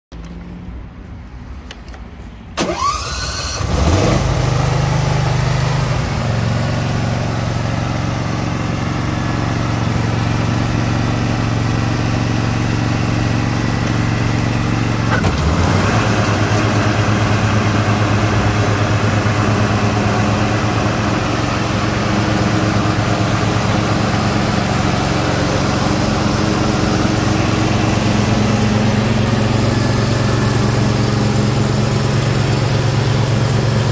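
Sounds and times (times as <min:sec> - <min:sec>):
starter motor whine: 0:02.6 - 0:04.3
mower engine running: 0:02.6 - 0:33.9.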